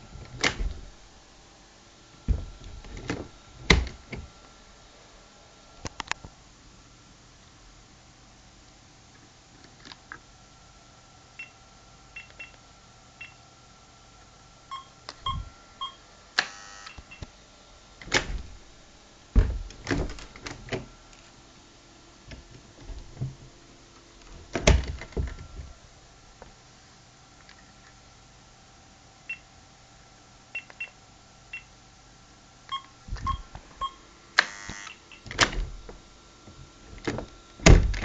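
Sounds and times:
door handle and latch clunking: 0.2 - 0.9, 2.3 - 4.3, 18.0 - 18.6, 19.4 - 20.9
keypad beeps: 12.2 - 12.6, 30.6 - 31.0, 32.7 - 34.0
electronic buzz: 15.2 - 17.2, 34.4 - 35.3.

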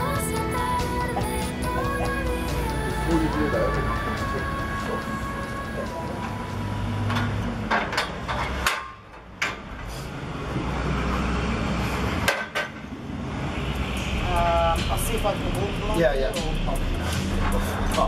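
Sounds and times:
steady background hum: 0.0 - 10.1.

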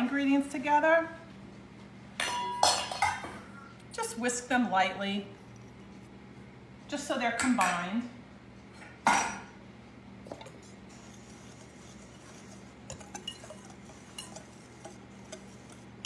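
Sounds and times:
whisk wires ticking on bowl: 11.4 - 16.0
whisk clinking against glass bowl: 11.6 - 15.8.

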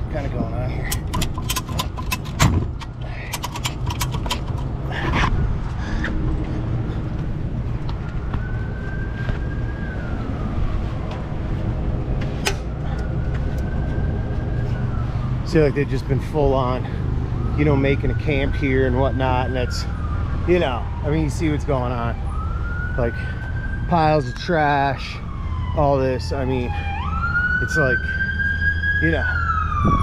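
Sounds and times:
metal clicks and clanks: 0.8 - 5.3.

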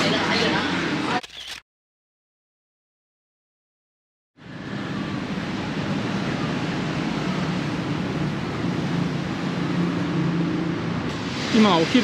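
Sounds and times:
steady rushing noise: 4.5 - 12.0.

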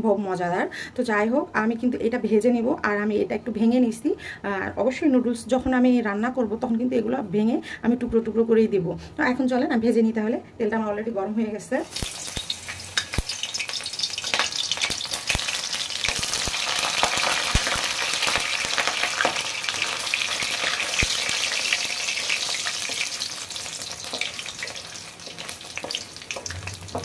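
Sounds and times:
food deep-frying in hot oil: 11.8 - 27.0.

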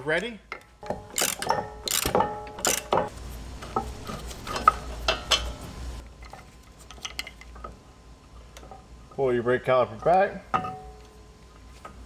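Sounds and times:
hardware clicking and rattling: 0.5 - 3.1
metal tools clanking: 0.6 - 3.1.

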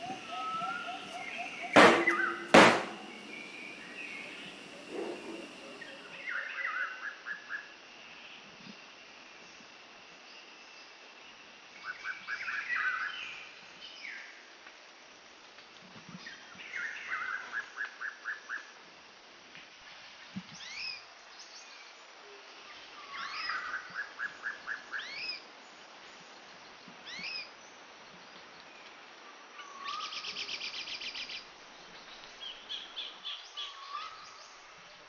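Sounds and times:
small birds singing: 0.0 - 6.9, 29.6 - 35.0
faint steady hiss: 0.0 - 35.0.

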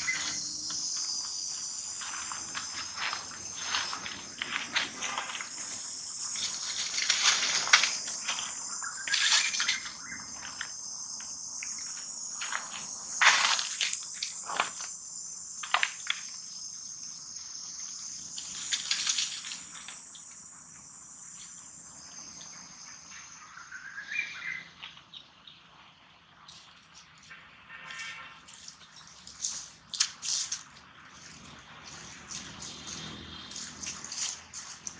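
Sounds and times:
dry leaves crackling: 0.0 - 10.7, 13.2 - 14.8, 18.3 - 20.1, 27.8 - 34.9
insect chorus: 0.0 - 34.9.

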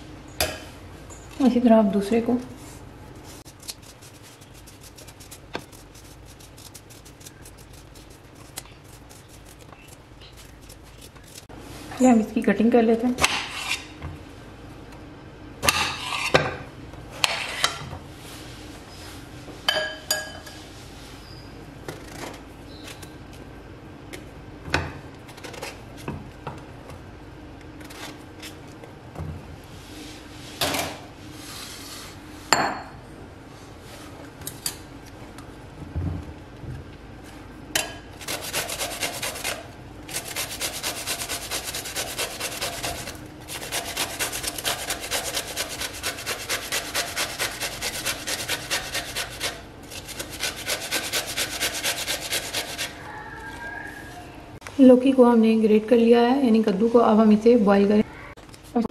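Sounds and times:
grating on metal grater: 3.5 - 11.5, 38.2 - 53.0.

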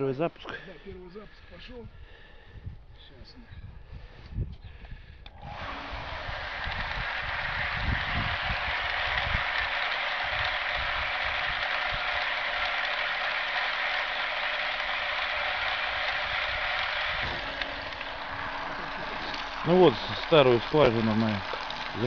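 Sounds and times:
water pump whirring hiss: 5.3 - 22.0.

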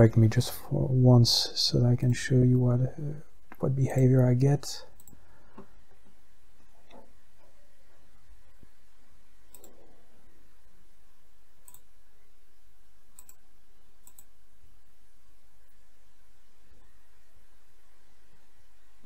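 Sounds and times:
faint low hum: 0.0 - 19.0
computer mouse clicking: 5.0 - 5.7, 9.5 - 9.8, 13.2 - 13.4, 14.0 - 14.3.

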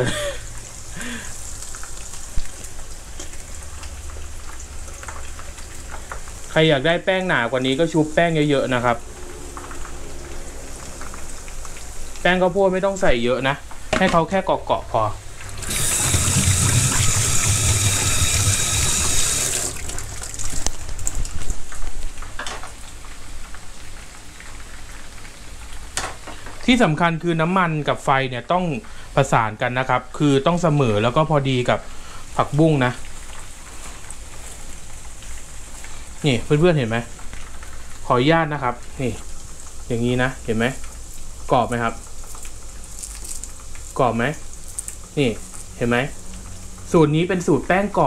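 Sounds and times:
deep-frying crackling sizzle: 0.0 - 48.0
steady rushing noise: 7.9 - 12.6.

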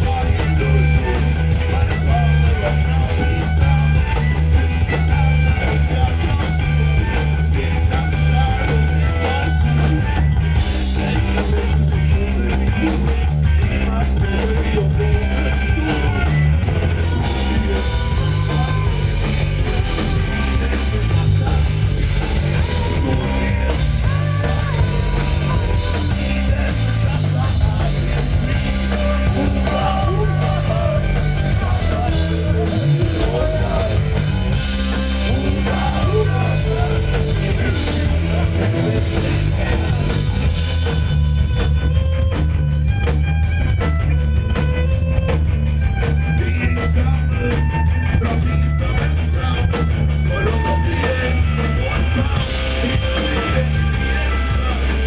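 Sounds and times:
bass guitar: 0.0 - 55.0
drum kit: 0.0 - 55.0
electric guitar: 0.0 - 55.0
person singing: 10.9 - 34.5, 35.1 - 40.4, 46.4 - 55.0.

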